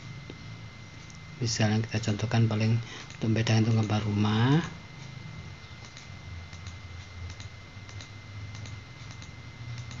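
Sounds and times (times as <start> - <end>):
faint steady hum: 0.0 - 10.0
computer mouse clicking: 3.0 - 4.0, 5.8 - 10.0.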